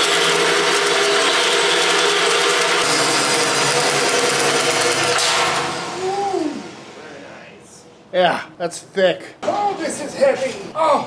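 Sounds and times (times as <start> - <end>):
drill boring through steel: 0.0 - 6.3
motor winding down whine: 0.0 - 7.2.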